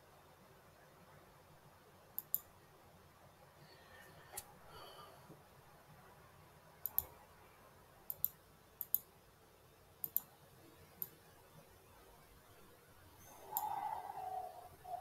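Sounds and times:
computer mouse clicking: 2.2s - 2.5s, 6.8s - 7.1s, 8.1s - 9.1s, 10.0s - 10.3s, 13.4s - 14.3s.

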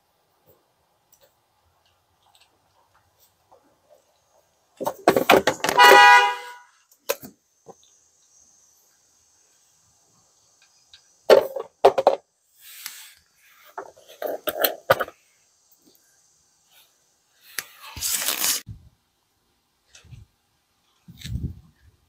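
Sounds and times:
short loud honk-like tone: 5.8s - 6.7s.

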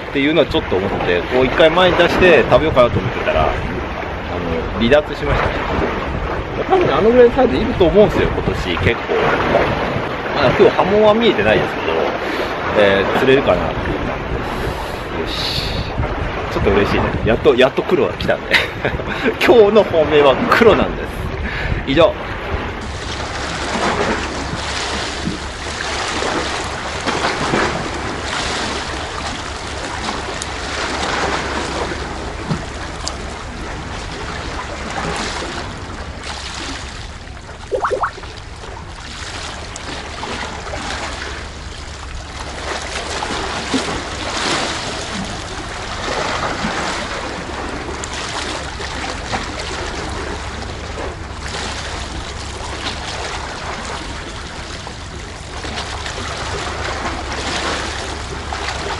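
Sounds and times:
wind buffeting microphone: 0.0s - 10.8s, 11.5s - 19.4s, 20.4s - 36.2s
sea waves surging: 0.0s - 58.9s.

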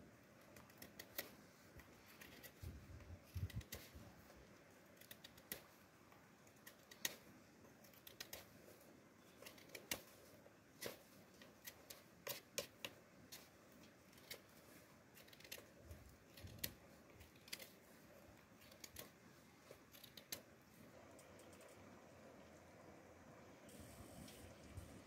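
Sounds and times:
knife scraping plant stem: 0.6s - 4.1s, 9.2s - 17.9s.

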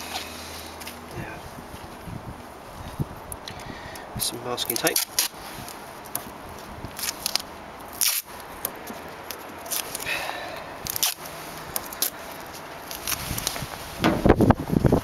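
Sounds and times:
masking tape ripping: 4.6s - 6.2s, 6.9s - 10.1s, 10.8s - 13.7s.

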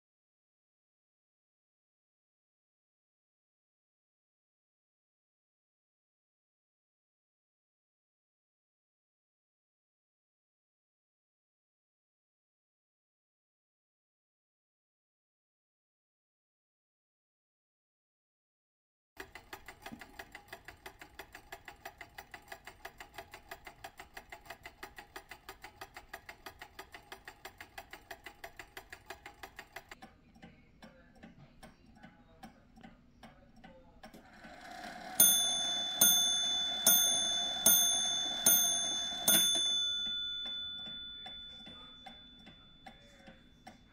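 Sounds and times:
clock striking: 19.2s - 43.9s
clock ticking: 19.2s - 43.9s.

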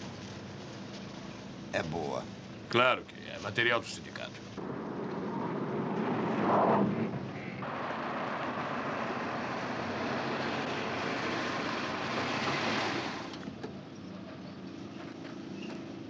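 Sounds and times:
car tyre and engine noise: 4.4s - 16.0s.

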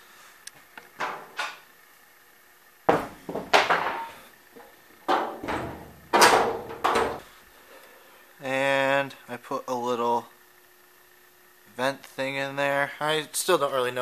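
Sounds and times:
car hood sheet-metal knocks: 5.1s - 7.2s.

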